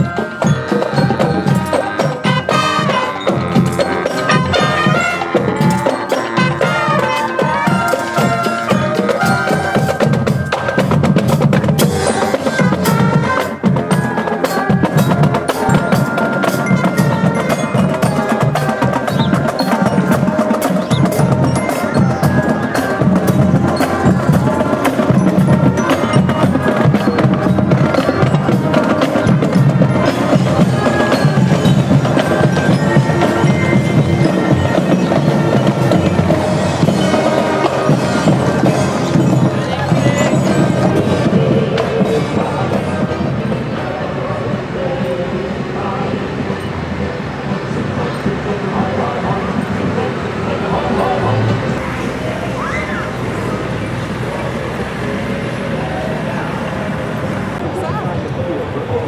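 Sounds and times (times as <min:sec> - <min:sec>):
ringing bell lyre notes: 0:13.9 - 0:41.7.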